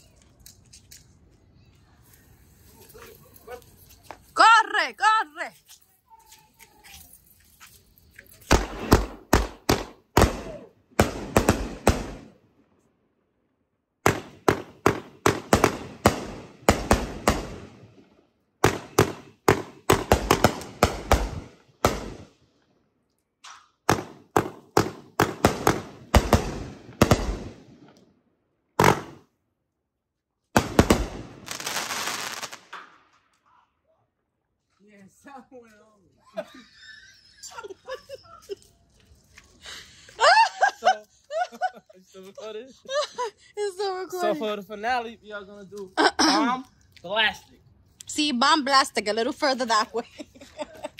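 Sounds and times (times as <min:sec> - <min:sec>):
firework cake firing volleys: 0:07.4 - 0:12.4.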